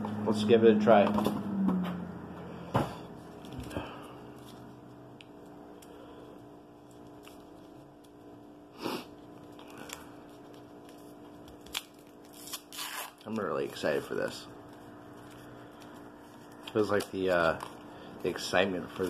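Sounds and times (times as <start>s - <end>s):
steady hum: 0.0s - 19.0s
paper wrapper rustling: 9.2s - 19.0s.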